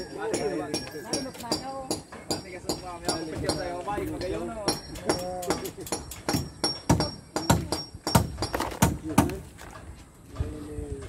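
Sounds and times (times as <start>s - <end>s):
voices: 0.0s - 8.2s
hammer knocking on wood: 0.4s - 9.4s.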